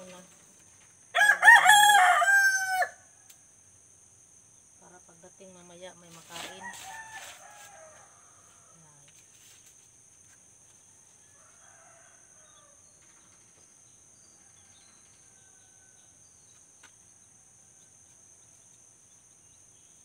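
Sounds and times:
faint roosters crowing: 1.1s - 3.4s, 6.3s - 9.1s, 10.8s - 13.5s, 14.1s - 16.5s.

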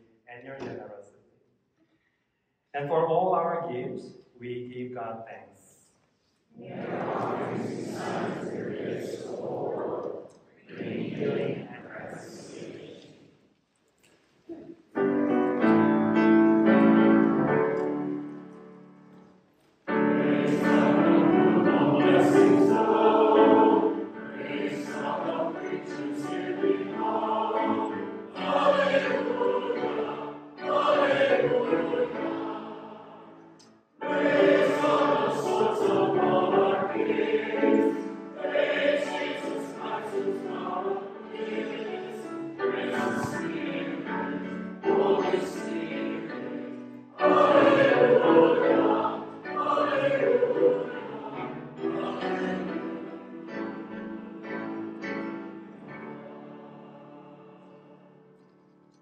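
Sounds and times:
choir singing a hymn: 6.5s - 13.4s, 15.0s - 19.2s, 19.8s - 58.8s
piano accompaniment: 14.9s - 58.9s.

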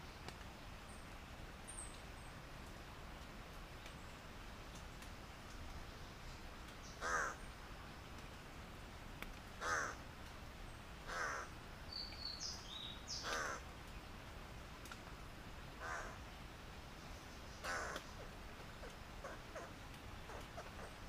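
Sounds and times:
bird calling: 6.8s - 7.5s, 9.6s - 10.0s, 11.1s - 13.7s, 15.8s - 16.2s, 17.5s - 21.0s.

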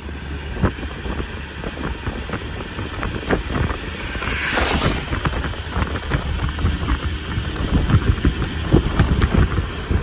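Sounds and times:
road and wind rumble: 0.0s - 10.0s
hiss: 3.6s - 6.1s.

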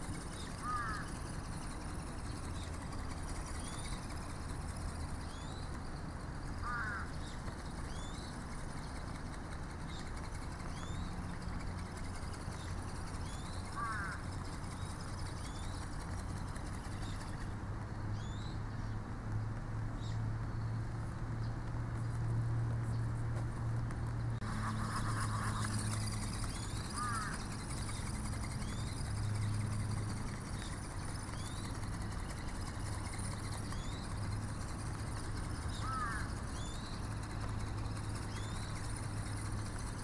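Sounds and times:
small bird chirping: 0.0s - 19.0s, 24.2s - 40.0s
steady low hum: 0.0s - 40.0s
loud rising bird calls: 0.4s - 1.8s, 6.6s - 7.2s, 13.6s - 14.5s, 24.4s - 29.4s, 35.5s - 36.8s.

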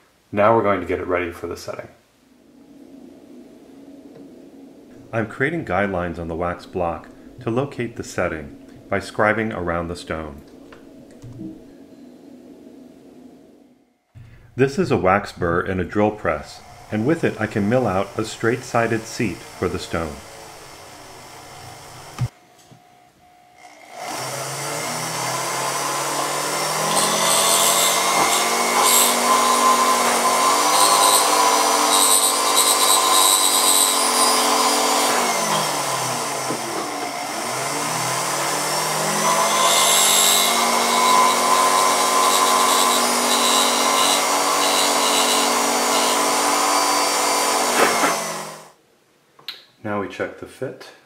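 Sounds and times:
drill press motor running: 16.6s - 22.3s, 23.6s - 48.7s
burr cutting wax: 24.9s - 48.2s.

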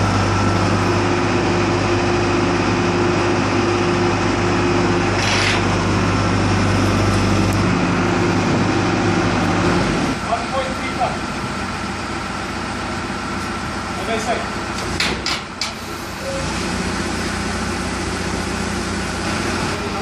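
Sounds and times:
diesel engine running: 0.0s - 20.0s.

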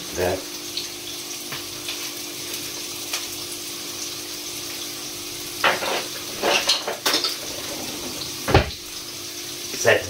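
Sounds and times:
vegetables sizzling in frying pan: 0.0s - 10.0s
kitchen utensils clattering: 5.6s - 8.8s.

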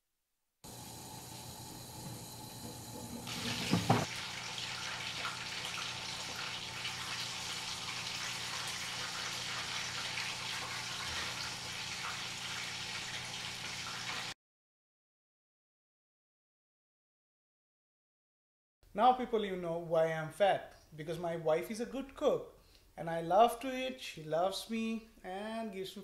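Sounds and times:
meat sizzling in hot oil: 0.7s - 14.4s.

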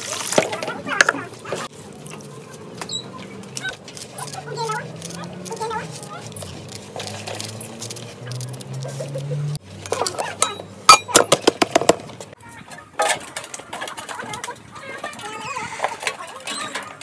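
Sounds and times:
metal pots clinking: 9.8s - 11.9s.

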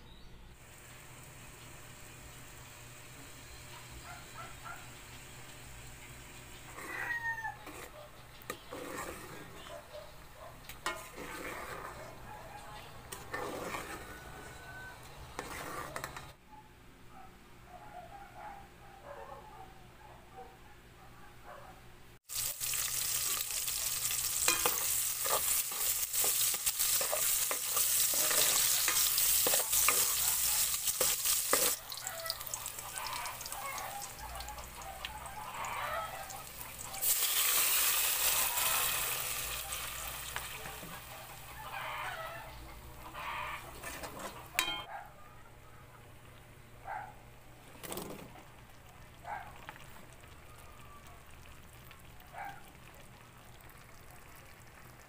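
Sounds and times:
onion sizzling in hot oil: 10.8s - 11.9s, 22.2s - 42.0s.

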